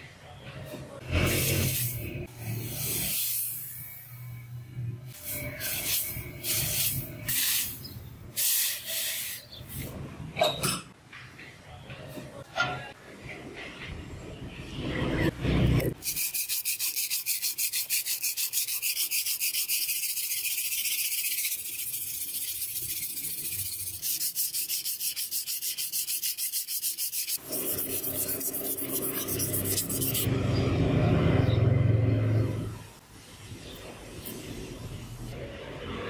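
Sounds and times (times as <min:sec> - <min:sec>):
sanding block on steel: 0:16.0 - 0:30.3.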